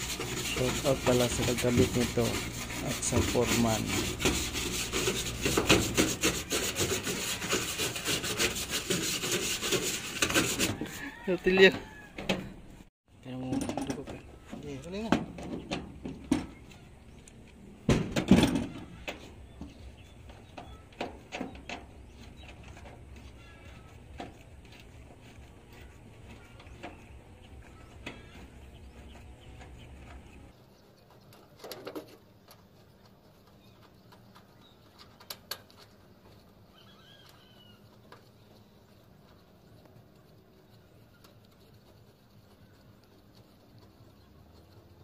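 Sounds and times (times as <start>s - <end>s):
hand tools tapping on metal roof: 4.0s - 10.8s, 15.0s - 16.7s, 17.9s - 24.4s.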